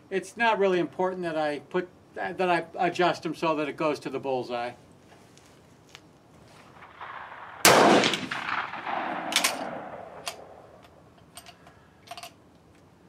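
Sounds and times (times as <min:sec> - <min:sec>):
rifle shot: 0:06.8 - 0:10.8
rifle bolt metallic clicks: 0:07.0 - 0:12.8.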